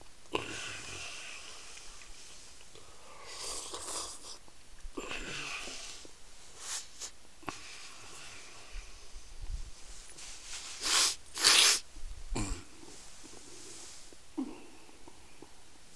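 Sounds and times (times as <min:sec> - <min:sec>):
person breathing noisily: 0:02.8 - 0:04.4, 0:05.0 - 0:09.4
person sniffing: 0:02.9 - 0:04.4, 0:05.1 - 0:09.2, 0:10.1 - 0:11.9.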